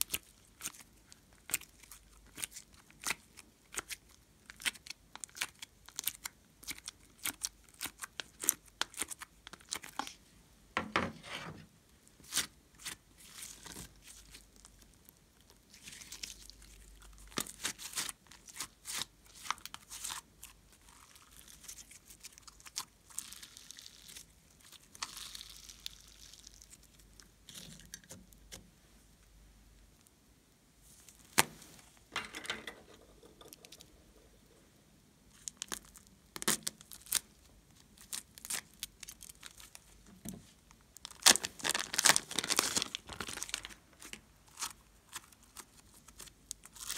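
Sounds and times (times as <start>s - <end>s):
slime squishing and crackling: 0.0s - 10.2s, 12.2s - 28.1s, 35.3s - 40.0s, 40.7s - 46.9s.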